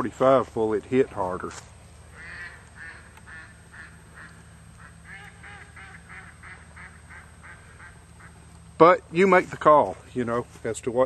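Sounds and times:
faint duck-like quacking: 0:02.1 - 0:08.5.

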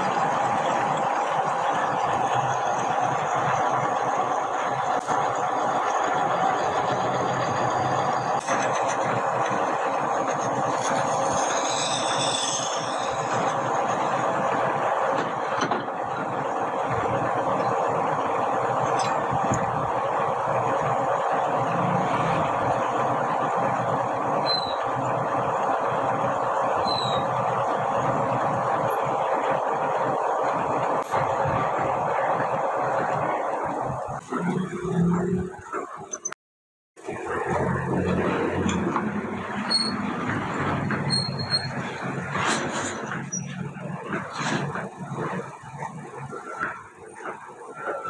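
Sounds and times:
rough rubbing on turning shaft: 0:00.0 - 0:22.9, 0:37.4 - 0:48.0
metal lathe running: 0:00.0 - 0:36.1, 0:37.0 - 0:48.0
file against turning shaft: 0:10.2 - 0:14.2
high wavering squeal: 0:10.3 - 0:14.2, 0:24.4 - 0:25.0, 0:26.5 - 0:27.6, 0:39.4 - 0:42.0.

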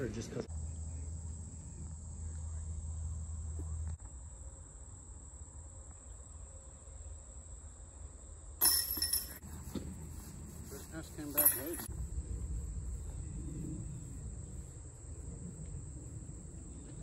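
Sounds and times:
low rumble: 0:11.8 - 0:17.0.

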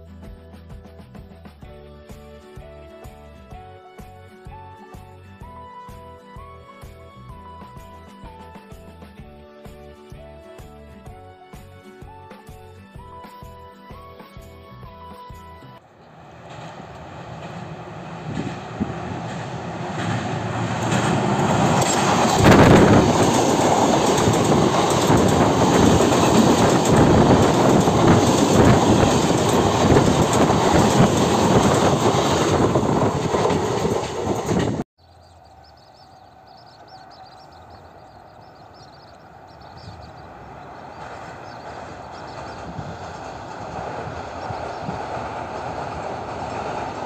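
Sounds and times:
train passing: 0:15.7 - 0:47.0.

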